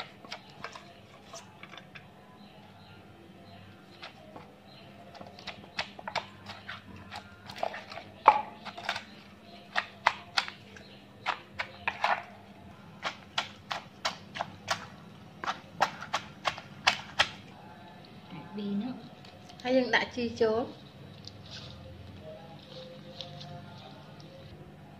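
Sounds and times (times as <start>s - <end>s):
wooden pestle knocking in mortar: 5.1s - 9.1s, 9.7s - 10.6s, 11.2s - 12.3s, 13.0s - 17.4s.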